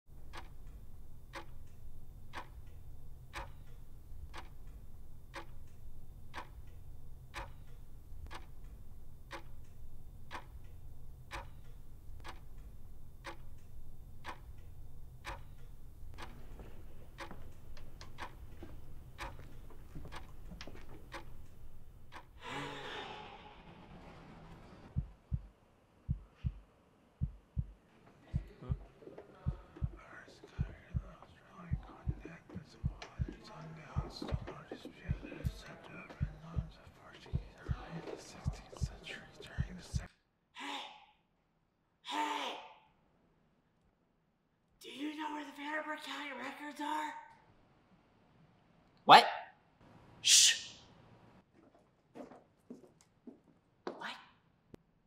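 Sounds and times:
low steady hum: 0.1 - 22.4
pendulum clock ticking: 0.1 - 22.4, 29.4 - 40.1.

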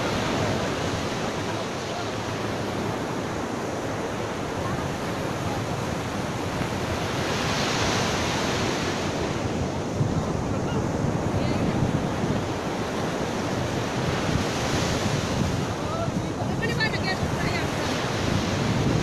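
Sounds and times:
ocean surf breaking on beach: 0.0 - 19.0
wind buffeting microphone: 0.0 - 19.0.

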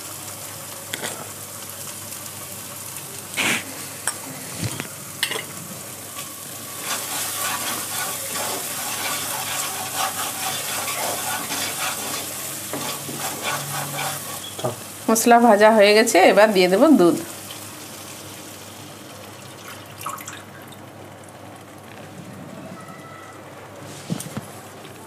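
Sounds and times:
paste sizzling in a pan: 0.0 - 19.9
spatula scraping a pan: 6.8 - 14.6.

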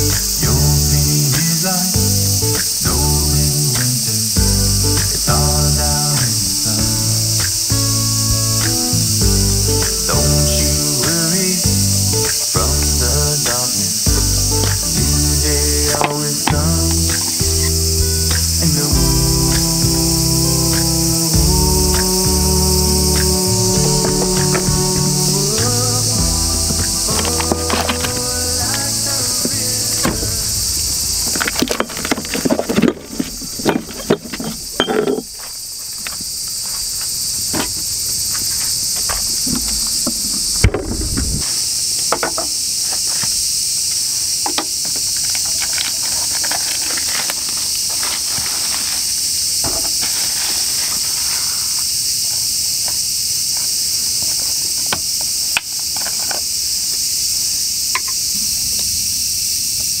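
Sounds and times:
background music: 0.0 - 30.9
insects chorus: 0.0 - 60.0.

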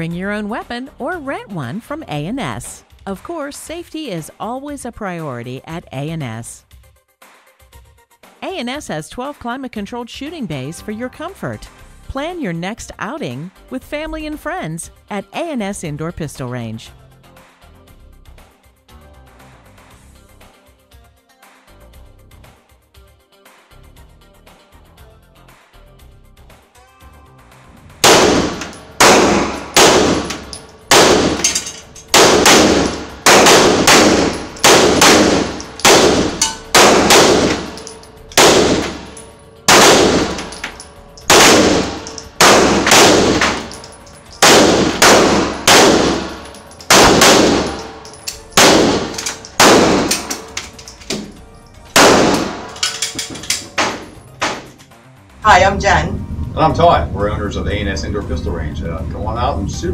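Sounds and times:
handgun shots echoing indoors: 28.0 - 54.7.

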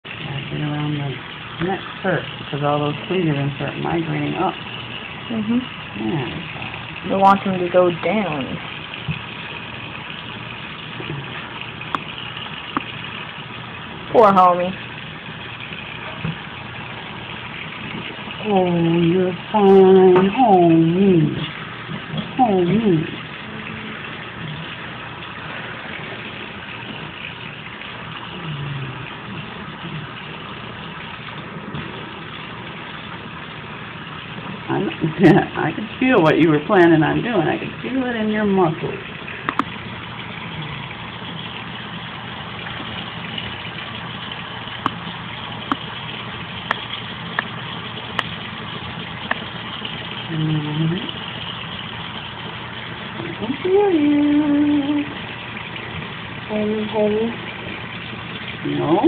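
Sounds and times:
faucet water pouring into sink: 0.0 - 59.0
person humming: 28.4 - 29.0, 53.2 - 55.2.

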